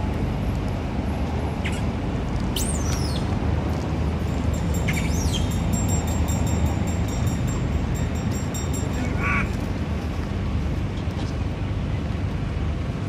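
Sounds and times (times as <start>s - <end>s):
steady low rumble: 0.0s - 13.0s
monkeys squealing: 4.9s - 5.6s, 9.0s - 9.5s.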